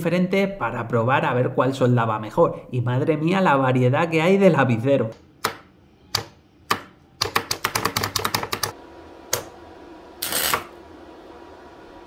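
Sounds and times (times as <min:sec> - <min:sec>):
sharp clicks and taps: 0:05.1 - 0:09.5.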